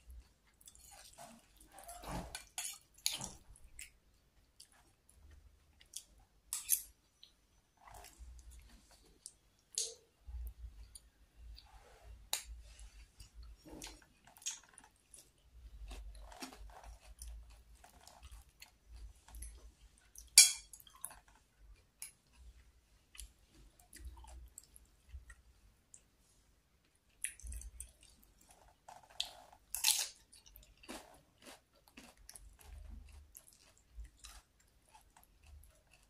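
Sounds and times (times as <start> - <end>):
close-up chewing: 30.2 - 36.0.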